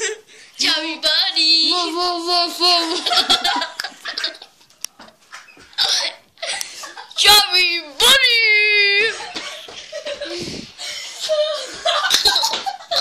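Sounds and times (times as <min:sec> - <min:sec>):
child laughing: 0:02.6 - 0:04.5, 0:11.2 - 0:13.0.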